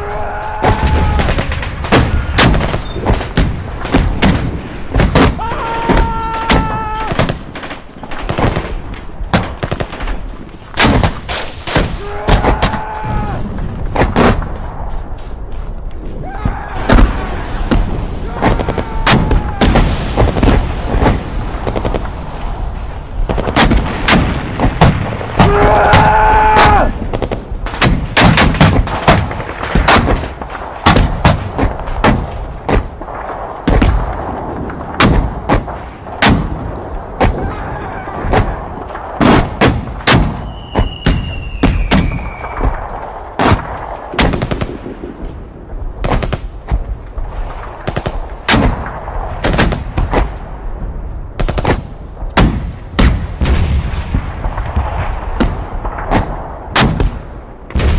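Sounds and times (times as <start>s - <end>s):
rifle and machine-gun fire: 0.7s - 5.4s, 6.3s - 12.7s, 17.6s - 25.5s, 38.3s - 45.2s.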